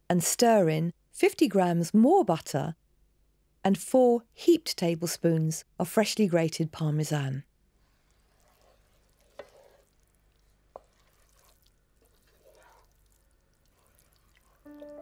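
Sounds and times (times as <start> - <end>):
wooden spoon stirring in pan: 7.8 - 15.0
soft music: 14.6 - 15.0.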